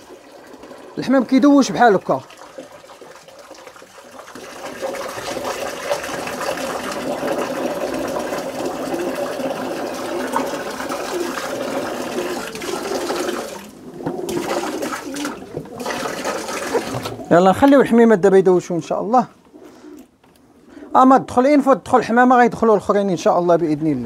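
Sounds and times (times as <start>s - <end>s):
water spraying from shower hose: 0.0s - 17.2s.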